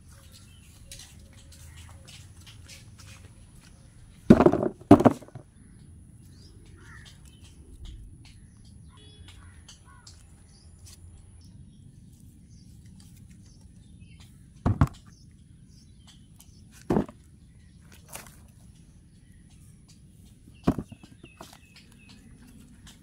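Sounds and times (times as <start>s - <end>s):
fruit thumping into plastic basin: 4.3s - 5.4s, 14.6s - 15.1s, 16.8s - 17.2s, 20.6s - 21.5s.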